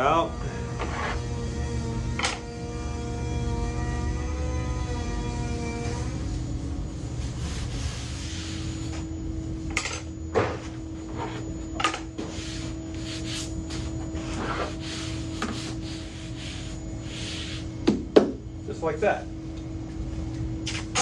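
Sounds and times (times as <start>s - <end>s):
fan hum: 0.0s - 21.0s
hands rubbing veneer on panel: 12.2s - 17.7s.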